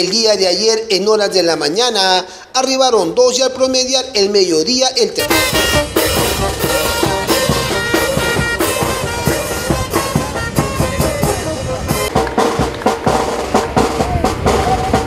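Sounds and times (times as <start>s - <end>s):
bass drum: 5.2s - 15.0s
brass band playing: 5.2s - 15.0s.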